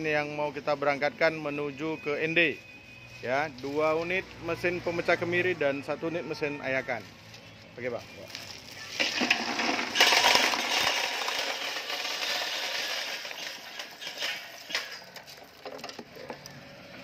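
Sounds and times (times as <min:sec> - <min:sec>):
nuts clattering through machine: 0:08.9 - 0:16.2.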